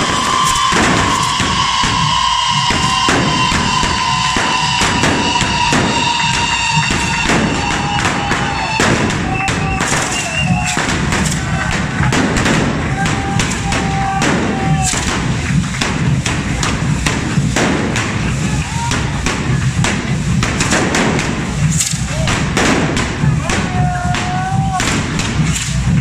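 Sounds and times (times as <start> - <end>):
whistling tones: 0.0 - 11.4
drumming: 0.0 - 26.0
firework bangs and cracks: 0.0 - 26.0
spark fountains hissing: 0.0 - 26.0.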